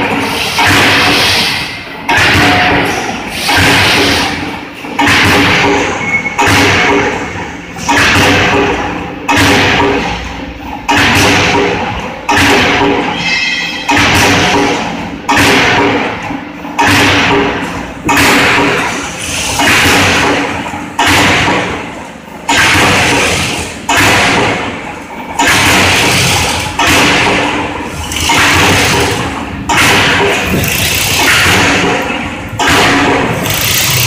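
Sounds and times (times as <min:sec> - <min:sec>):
rushing hydraulic noise: 0:00.0 - 0:06.4, 0:25.4 - 0:34.0
punching machine strokes: 0:00.0 - 0:34.0.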